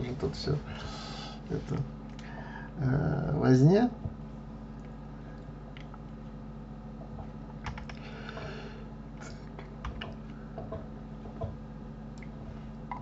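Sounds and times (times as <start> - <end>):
steady low hum: 0.0 - 13.0
computer keyboard clicks: 7.6 - 8.0.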